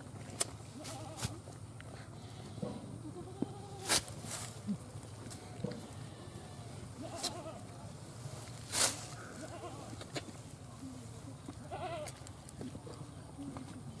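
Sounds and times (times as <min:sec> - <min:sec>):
animal bleating: 0:00.8 - 0:01.4, 0:03.0 - 0:03.9, 0:07.0 - 0:07.7, 0:09.3 - 0:10.0, 0:11.7 - 0:12.2.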